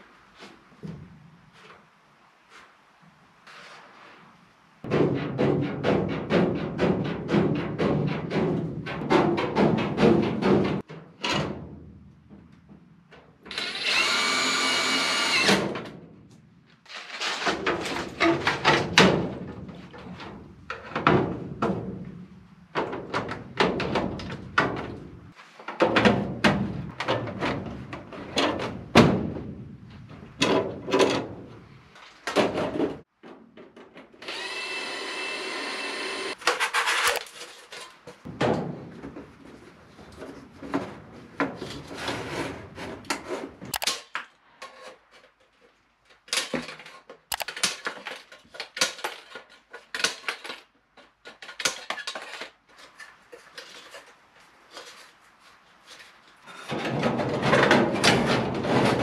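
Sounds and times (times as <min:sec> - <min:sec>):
sheet metal knocks and clanks: 0:04.9 - 0:12.9, 0:17.5 - 0:29.7, 0:56.7 - 0:59.0
power drill running: 0:13.5 - 0:15.5, 0:34.2 - 0:36.4.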